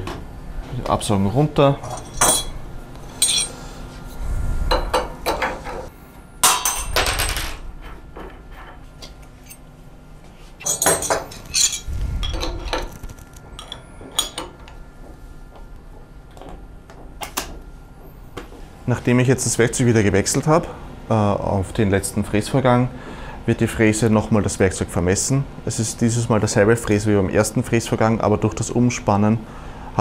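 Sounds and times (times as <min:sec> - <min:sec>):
metal tools clinking: 0:01.8 - 0:03.6, 0:10.6 - 0:12.9.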